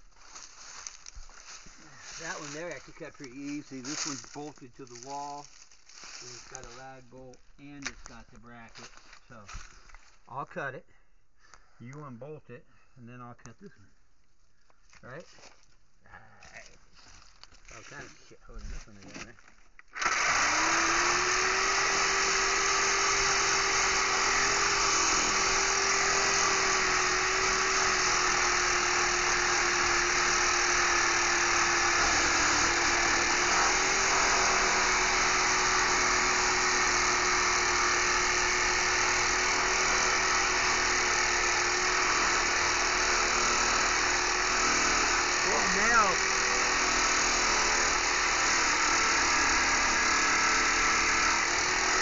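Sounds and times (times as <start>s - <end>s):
reciprocating saw cutting metal: 0.0s - 7.1s, 20.0s - 52.0s.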